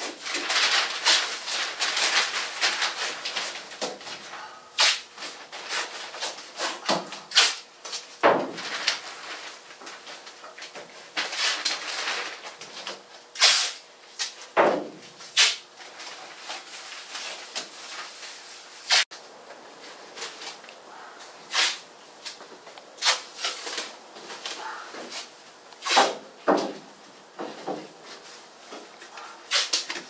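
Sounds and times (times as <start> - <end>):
paper and plastic sheeting crinkling: 0.0 - 13.3, 15.2 - 20.7
masking tape ripping off roll: 0.1 - 4.1, 4.8 - 9.6, 11.2 - 14.4, 15.3 - 15.6, 18.8 - 19.1, 21.5 - 21.8, 23.0 - 23.9, 25.2 - 26.2, 29.5 - 30.0.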